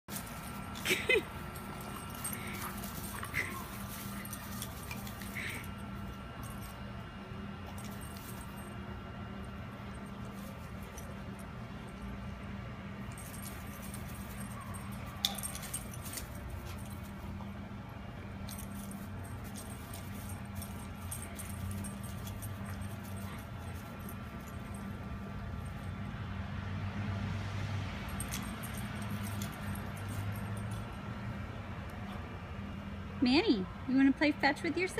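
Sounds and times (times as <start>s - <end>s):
dog collar tags jingling: 0.1s - 6.8s, 7.6s - 8.8s, 13.0s - 17.4s, 18.4s - 25.9s, 28.1s - 31.0s
steady low hum: 0.1s - 34.9s.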